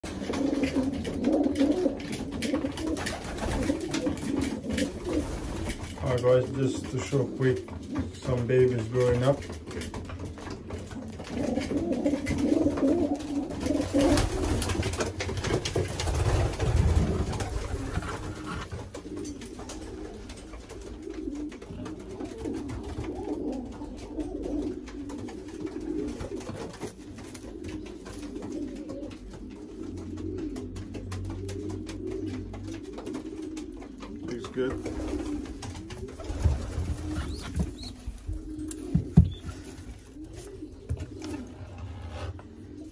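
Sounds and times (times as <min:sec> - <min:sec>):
pigeons cooing: 0:00.0 - 0:42.9
rustling and bumps: 0:34.4 - 0:42.6.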